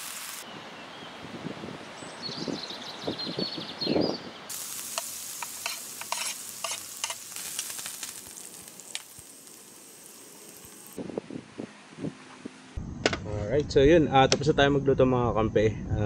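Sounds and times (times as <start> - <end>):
squid sizzling in pan: 0.0 - 0.4, 4.5 - 11.0
crackling pops: 4.5 - 11.0.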